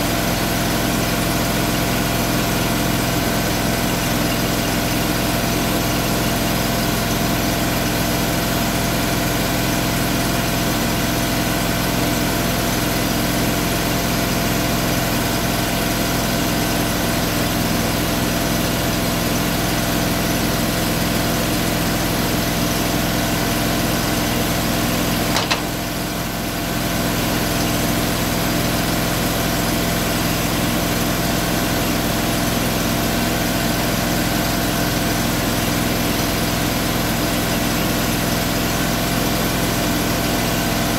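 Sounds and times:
engine idling: 0.0s - 40.9s
sharp click: 25.3s - 25.7s.

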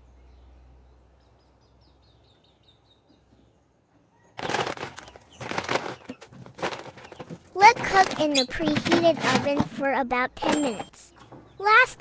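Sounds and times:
plastic bag rustling: 4.4s - 9.6s.

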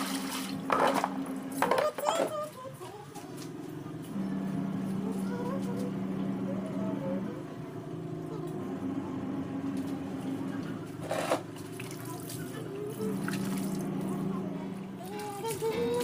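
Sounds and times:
water splashing and dripping: 0.0s - 1.2s, 11.5s - 14.1s
background music with held notes: 0.0s - 11.0s, 12.4s - 16.0s.

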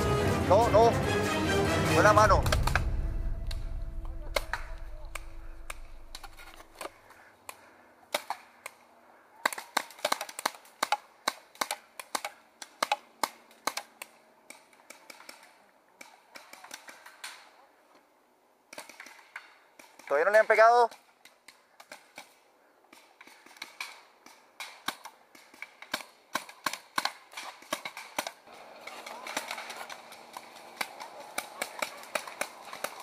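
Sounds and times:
low rumble: 0.0s - 6.8s
paintball markers firing: 2.4s - 3.0s, 4.2s - 17.5s, 18.7s - 33.0s.

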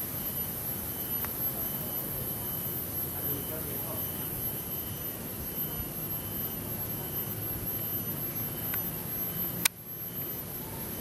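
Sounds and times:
bee colony humming drone: 0.0s - 11.0s
sharp click: 9.6s - 9.8s.

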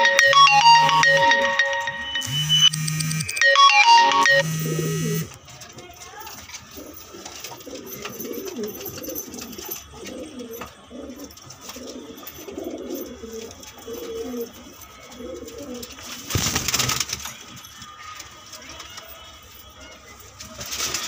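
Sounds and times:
pigeons cooing: 6.6s - 16.3s.

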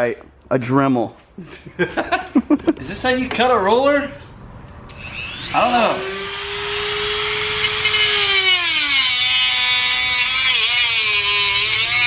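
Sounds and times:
rotary tool cutting wood: 4.9s - 12.0s.

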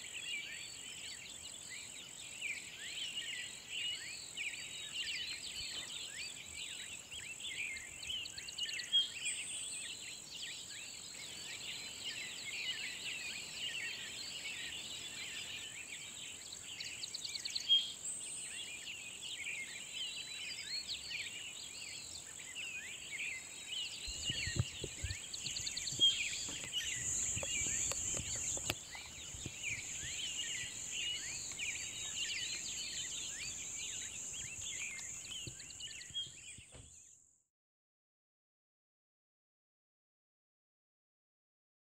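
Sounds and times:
small birds chirping and trilling: 0.0s - 37.4s
high insect trill: 24.4s - 35.5s.

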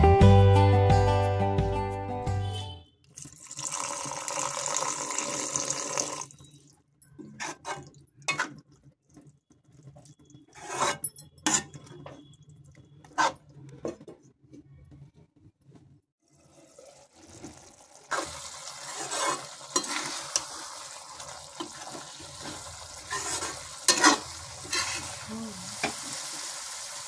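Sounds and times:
water pouring into pan: 3.2s - 6.4s, 16.2s - 27.0s
ladle scraping and clinking pan: 7.2s - 8.6s, 10.5s - 12.1s, 18.1s - 20.5s, 22.4s - 25.1s.

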